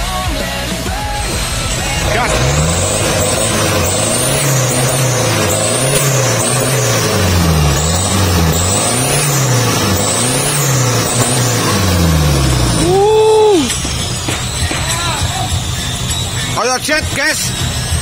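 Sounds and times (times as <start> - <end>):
high engine whine: 0.6 - 18.0
diesel engine revving: 0.7 - 18.0.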